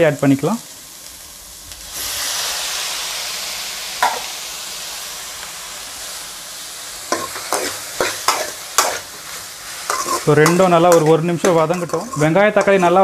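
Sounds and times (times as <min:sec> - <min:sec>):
tomatoes sizzling in hot oil: 0:00.0 - 0:13.0
metal spoon scraping a pan: 0:07.1 - 0:13.0.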